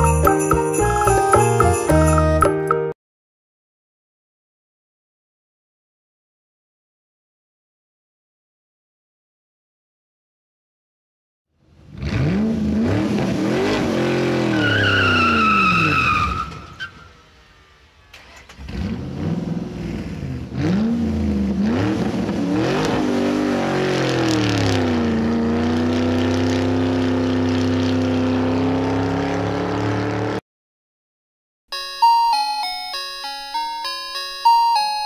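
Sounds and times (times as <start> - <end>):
car engine revving: 11.6 - 30.4
tyre squeal: 14.4 - 17.2.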